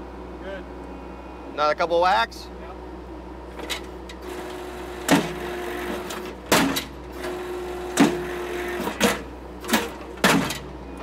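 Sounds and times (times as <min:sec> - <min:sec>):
post driver hammering wooden post: 0:08.0 - 0:08.3.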